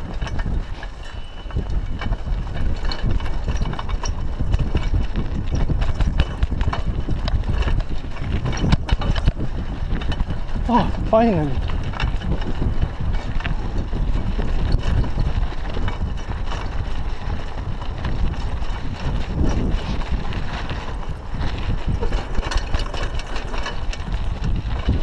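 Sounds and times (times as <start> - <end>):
bike clicks and rattles: 0.0 - 25.0
bike tyres rumbling on dirt: 0.0 - 25.0.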